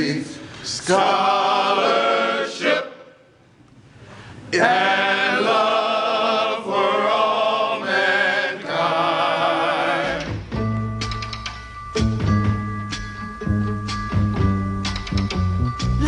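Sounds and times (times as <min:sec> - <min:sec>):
men singing a cappella harmony: 0:00.8 - 0:02.9, 0:04.5 - 0:10.3
recorded band music with bass: 0:10.3 - 0:16.0.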